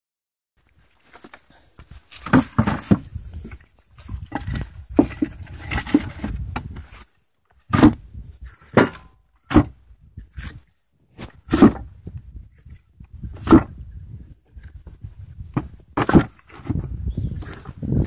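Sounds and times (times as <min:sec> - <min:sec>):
firewood knocking and clunking: 0:01.8 - 0:06.8, 0:07.7 - 0:09.7, 0:13.3 - 0:13.8, 0:14.8 - 0:16.8.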